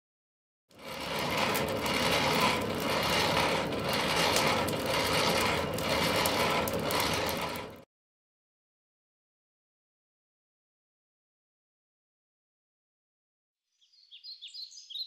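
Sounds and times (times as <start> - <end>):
forge blower whirring: 0.7 - 7.8.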